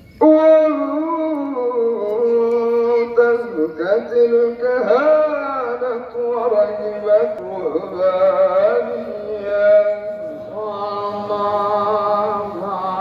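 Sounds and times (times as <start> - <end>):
person chanting long sliding notes: 8.6 - 13.0.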